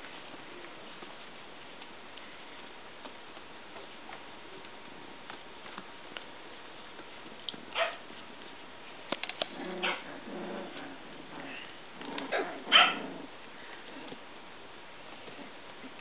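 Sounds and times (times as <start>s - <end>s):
puppies yipping: 12.2s - 13.0s.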